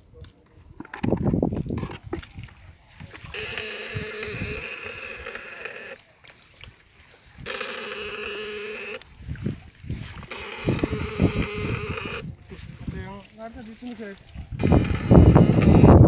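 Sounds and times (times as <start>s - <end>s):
electric shocker buzzing: 3.1s - 6.1s, 7.3s - 9.2s, 9.9s - 12.4s, 14.6s - 16.0s.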